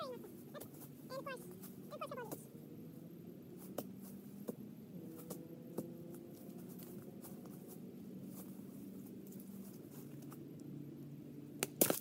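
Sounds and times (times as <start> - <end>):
steady low hum: 0.0 - 12.0
twigs and leaves crackling underfoot: 0.2 - 2.5, 5.2 - 10.5, 11.6 - 12.0.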